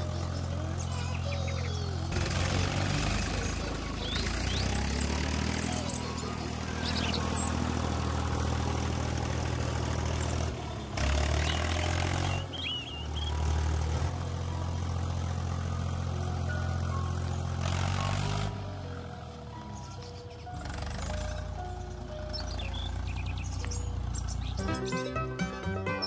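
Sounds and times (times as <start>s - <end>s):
tractor engine running: 0.0s - 26.0s.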